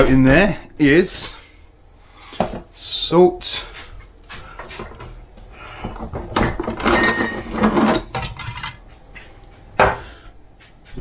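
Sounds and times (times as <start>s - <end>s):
jars and bottles clinking: 6.5s - 8.8s.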